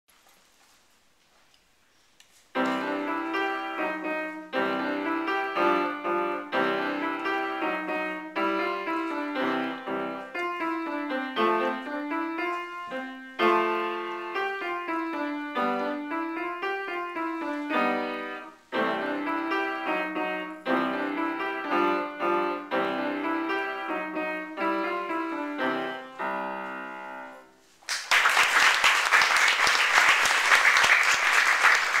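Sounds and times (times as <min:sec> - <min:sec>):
upright piano piece: 0:02.5 - 0:27.8
applause: 0:27.8 - 0:32.0.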